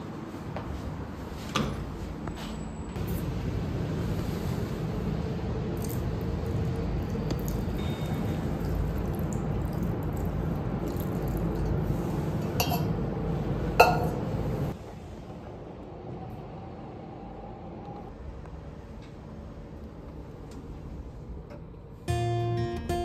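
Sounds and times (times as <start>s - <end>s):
metal watering can clinking: 12.4s - 13.0s, 13.8s - 14.2s.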